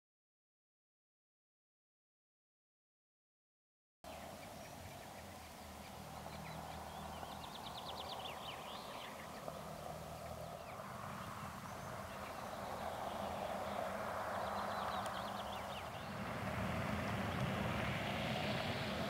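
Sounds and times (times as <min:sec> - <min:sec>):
car driving on gravel: 0:05.6 - 0:19.0.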